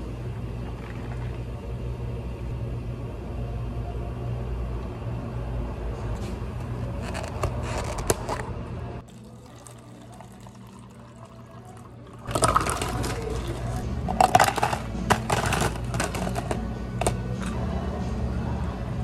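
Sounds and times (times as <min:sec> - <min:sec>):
low steady hum: 0:00.0 - 0:19.0
water pouring into plastic cup: 0:09.0 - 0:13.8
metal spoon stirring in cup: 0:09.1 - 0:17.6.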